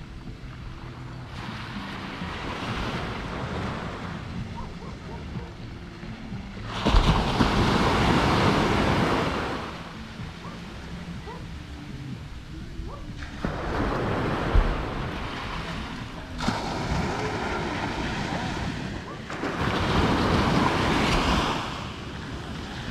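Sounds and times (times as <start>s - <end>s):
waves breaking on a beach: 0.0s - 22.9s.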